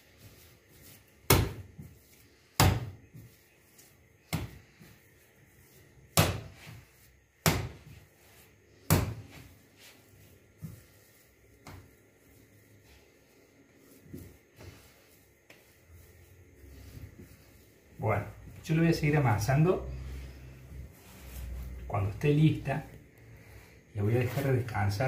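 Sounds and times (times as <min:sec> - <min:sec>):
dough slapped on countertop: 0:01.2 - 0:03.2, 0:04.3 - 0:04.6, 0:06.1 - 0:06.8, 0:07.4 - 0:08.0, 0:08.8 - 0:09.4, 0:11.6 - 0:11.9.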